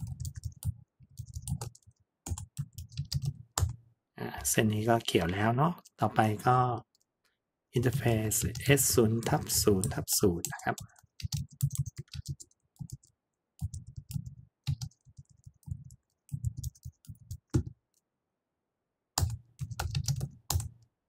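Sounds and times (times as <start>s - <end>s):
typing on keyboard: 0.0s - 3.8s, 7.9s - 17.8s, 19.2s - 20.9s.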